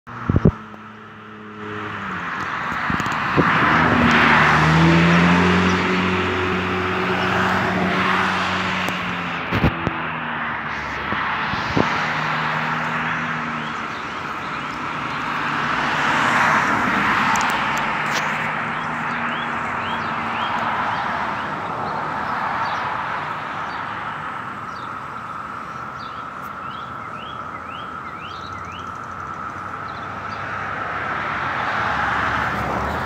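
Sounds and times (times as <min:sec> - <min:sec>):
vehicle engine hum: 0:00.1 - 0:33.0
cicadas droning: 0:10.0 - 0:31.6.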